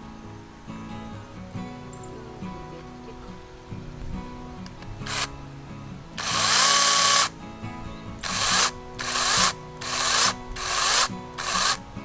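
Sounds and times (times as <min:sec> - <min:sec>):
background music: 0:00.0 - 0:12.0
cordless chainsaw motor whirring: 0:05.0 - 0:05.3, 0:06.2 - 0:07.3, 0:08.2 - 0:11.8.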